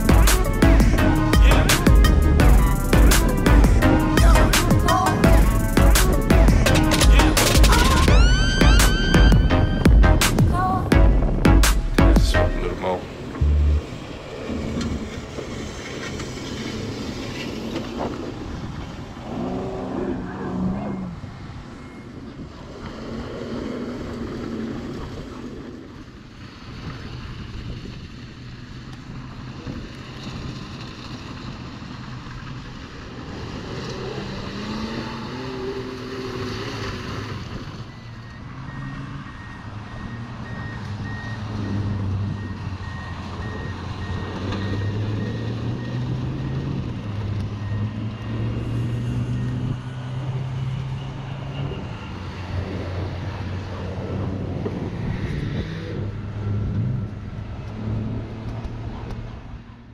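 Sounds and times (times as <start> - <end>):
suv engine revving: 0.0 - 21.6, 30.3 - 51.0.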